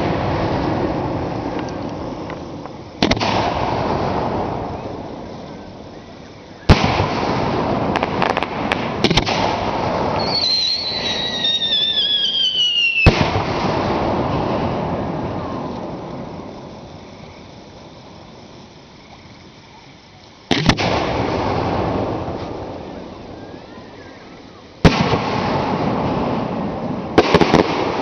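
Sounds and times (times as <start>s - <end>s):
firework shells bursting: 0.0s - 23.4s, 24.7s - 28.0s
firework crackles: 0.0s - 28.0s
firework whistle falling in pitch: 10.1s - 13.2s.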